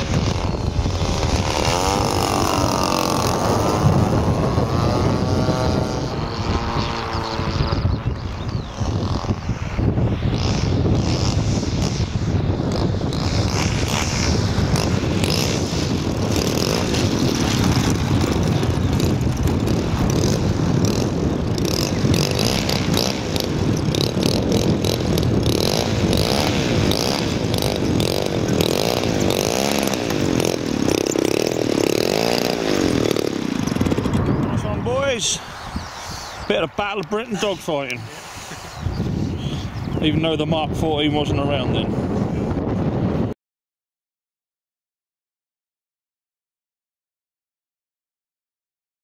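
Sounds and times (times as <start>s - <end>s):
model plane engine running: 0.0s - 36.4s.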